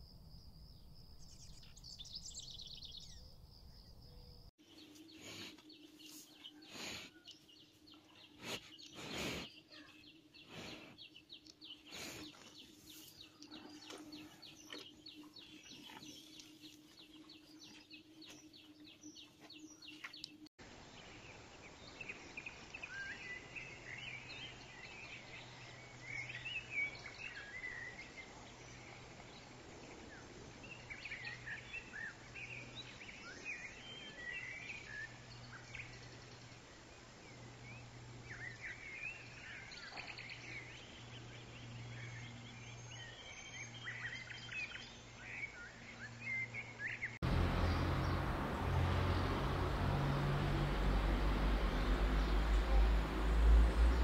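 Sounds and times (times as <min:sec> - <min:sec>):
birds twittering: 0:22.0 - 0:54.0
low hum: 0:47.2 - 0:54.0
low steady drone: 0:47.2 - 0:54.0.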